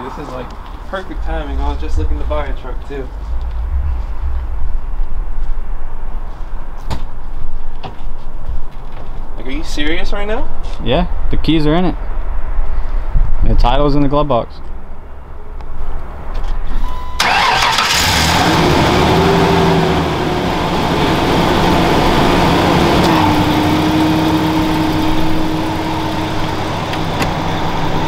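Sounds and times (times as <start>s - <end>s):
pickup engine starting and idling: 16.9s - 28.0s.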